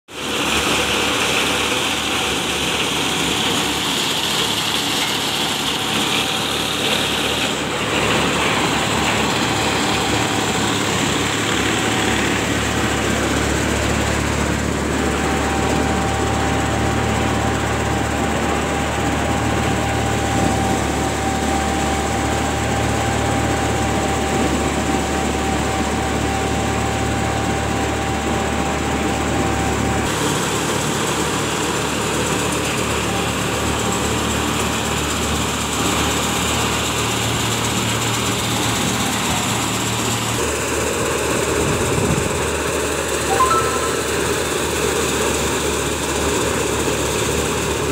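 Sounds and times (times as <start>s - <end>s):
tractor engine running: 0.2s - 25.2s
deeper drone: 43.3s - 45.0s.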